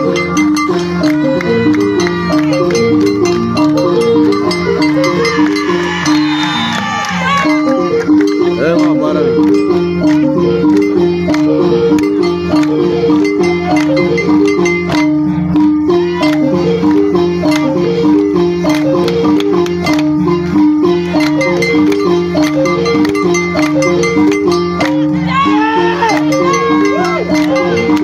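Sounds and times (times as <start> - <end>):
loud dance music: 4.7 - 7.9, 25.1 - 28.0.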